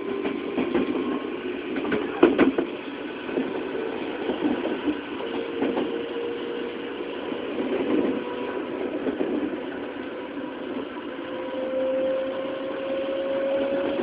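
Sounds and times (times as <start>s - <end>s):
wheels clacking over rail joints: 0.0s - 3.6s
electric train motor drone: 0.0s - 14.0s.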